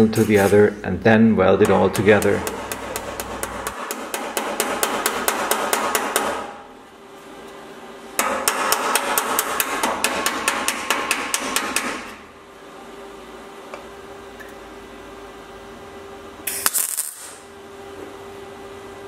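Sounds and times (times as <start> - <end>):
hammer tapping on sheet steel: 1.6 - 6.6, 8.2 - 12.2.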